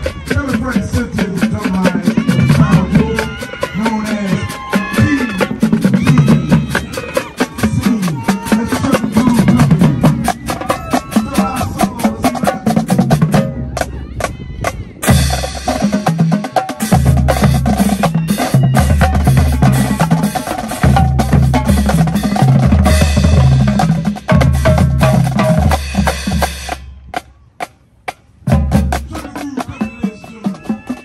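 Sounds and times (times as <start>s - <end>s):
bass drums: 0.0s - 27.3s, 28.1s - 31.0s
tenor drums: 0.0s - 31.0s
snare drums: 15.0s - 27.3s, 28.1s - 31.0s.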